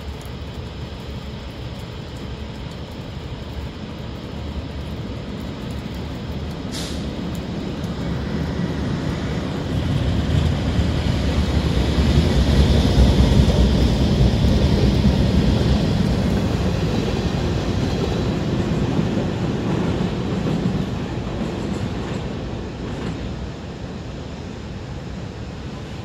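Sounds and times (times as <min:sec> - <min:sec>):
diesel locomotive: 0:00.0 - 0:26.0
freight cars rolling by: 0:03.6 - 0:26.0.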